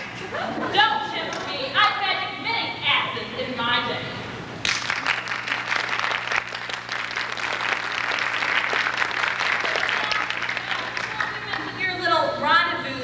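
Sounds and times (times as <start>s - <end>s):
audience applause: 4.7s - 11.4s.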